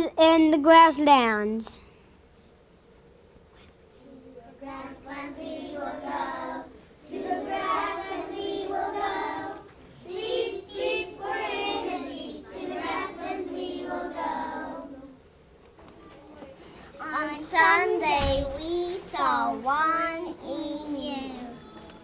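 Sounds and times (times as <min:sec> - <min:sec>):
young children singing: 0:04.5 - 0:15.2, 0:17.0 - 0:22.0.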